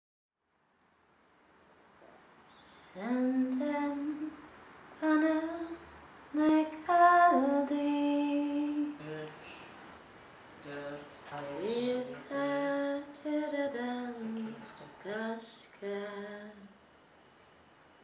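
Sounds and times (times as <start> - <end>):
woman singing wordless melody: 2.7 - 9.2, 11.6 - 16.8.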